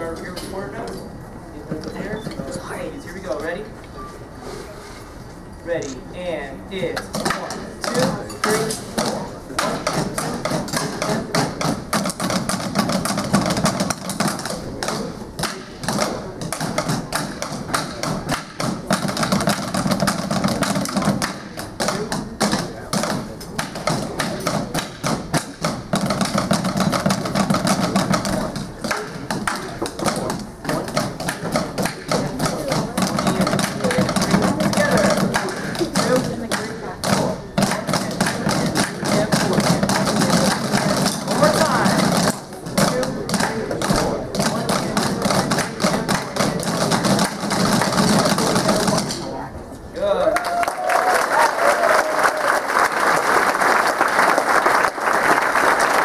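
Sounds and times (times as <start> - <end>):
sticks tapping on practice pads: 7.0 - 49.2
large drum beat: 7.1 - 49.1.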